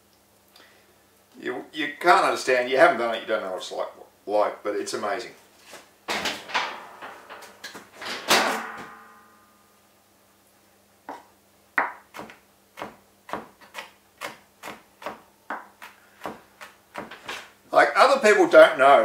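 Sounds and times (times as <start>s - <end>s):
ringing knock: 8.3s - 9.5s
knife chopping on plastic board: 11.1s - 17.2s.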